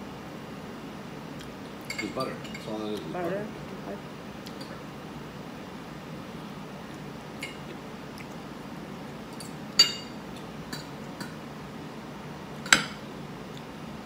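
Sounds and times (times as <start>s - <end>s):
metal fork clinking on plate: 1.9s - 2.7s.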